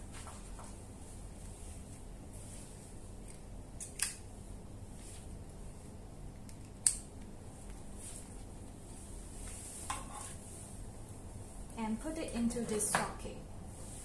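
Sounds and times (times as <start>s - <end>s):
faint handling rustle: 0.1s - 3.2s, 4.9s - 6.0s, 7.5s - 11.6s.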